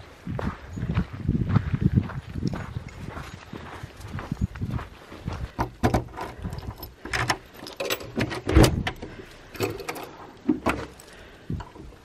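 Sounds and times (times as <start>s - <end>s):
footsteps on frosty ground: 0.0s - 5.8s
keys jangling: 6.2s - 8.2s.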